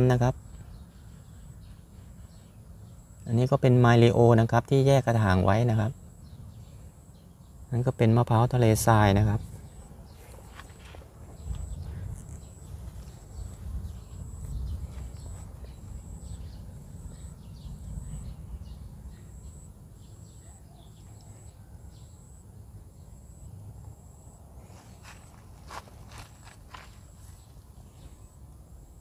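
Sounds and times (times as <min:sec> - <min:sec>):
low microphone rumble: 0:09.1 - 0:20.0
faint footsteps: 0:09.5 - 0:16.1, 0:24.6 - 0:28.2
faint high chirp: 0:09.6 - 0:23.6.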